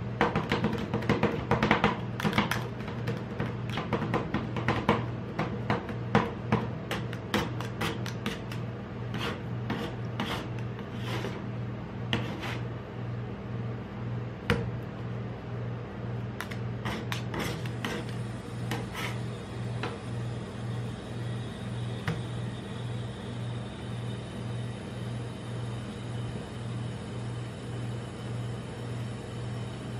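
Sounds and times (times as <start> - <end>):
steady low hum: 0.0 - 29.9
spatula scraping: 6.9 - 11.5, 12.1 - 12.7, 16.4 - 19.3.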